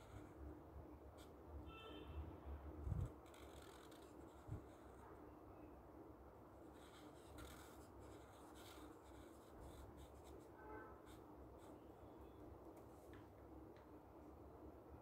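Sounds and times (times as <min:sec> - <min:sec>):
marker scratching on paper: 0:00.0 - 0:00.4, 0:02.9 - 0:05.0, 0:06.6 - 0:11.9.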